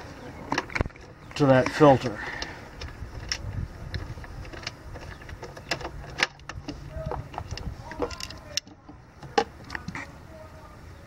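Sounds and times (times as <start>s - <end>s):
tools and metal parts clinking: 2.8s - 9.4s.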